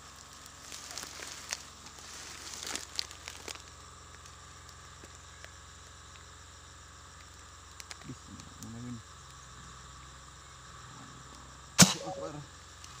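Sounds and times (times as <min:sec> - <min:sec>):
leaves and undergrowth rustling: 0:00.0 - 0:05.4
small ticks: 0:00.0 - 0:11.5.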